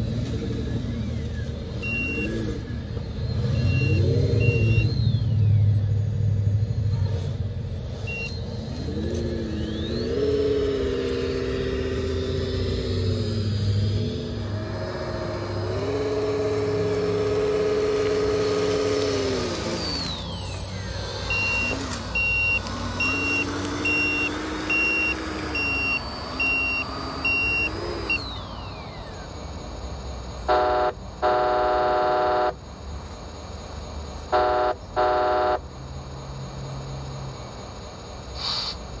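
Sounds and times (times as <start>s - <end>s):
simulated diesel engine revving: 0.0s - 39.0s
reversing beeper: 0.6s - 7.0s, 7.9s - 32.6s
truck horn honking: 30.4s - 32.7s, 34.2s - 35.8s.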